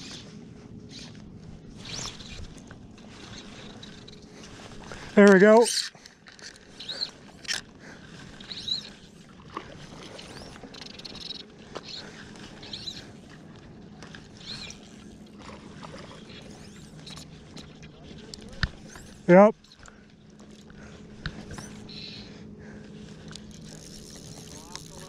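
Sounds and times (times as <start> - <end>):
fly line squeaky swish: 0.0 - 4.8, 6.6 - 7.6, 8.2 - 13.4, 14.2 - 19.8, 21.3 - 22.3, 23.5 - 25.0.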